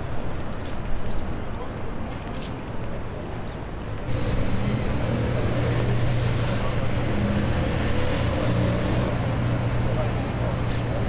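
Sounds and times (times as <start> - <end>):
road noise: 0.0 - 11.0
vehicle engine humming: 4.1 - 11.0.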